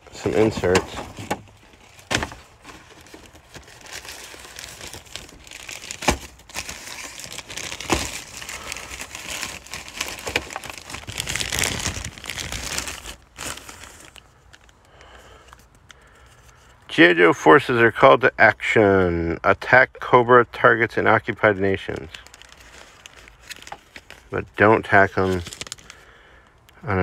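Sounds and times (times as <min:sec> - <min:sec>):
cardboard and plastic rustling: 0:00.0 - 0:16.7, 0:21.7 - 0:26.0.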